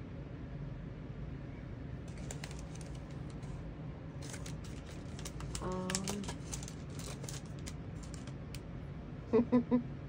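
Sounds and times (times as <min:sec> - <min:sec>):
plastic packaging crinkling and clicking: 0:02.1 - 0:03.6, 0:04.2 - 0:08.6
person humming: 0:09.3 - 0:09.9.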